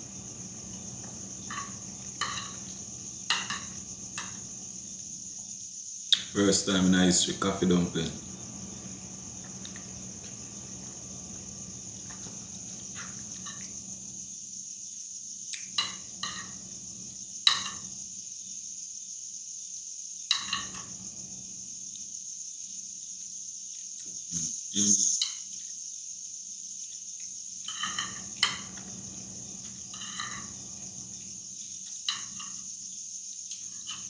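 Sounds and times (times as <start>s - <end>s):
high-pitched hiss: 0.0s - 34.0s
fork scraping on a plate: 29.8s - 30.6s.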